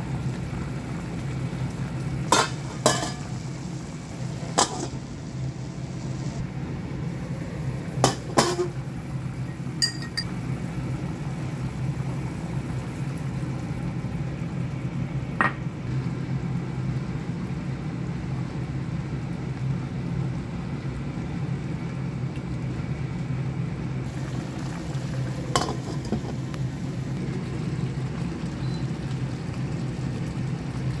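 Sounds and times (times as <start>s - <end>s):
steady low hum: 0.0s - 31.0s
glass lid clinking on pan: 9.8s - 10.3s.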